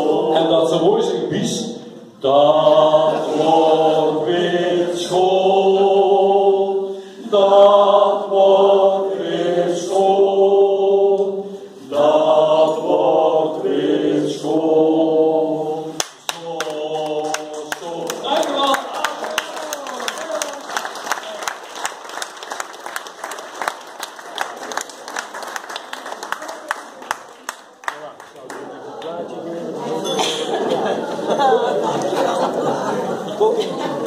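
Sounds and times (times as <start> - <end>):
group singing: 0.0 - 1.1, 2.2 - 19.6
people clapping: 16.0 - 29.4.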